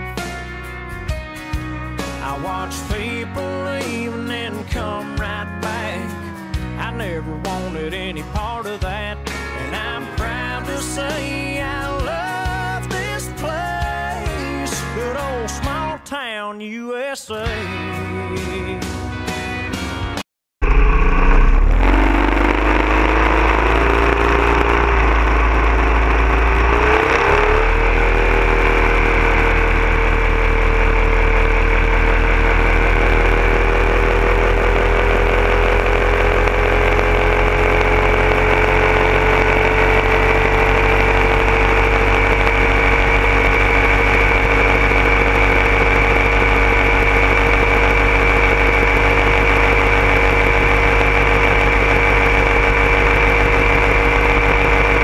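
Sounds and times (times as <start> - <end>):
boat motor: 0.0 - 6.9, 20.6 - 55.0.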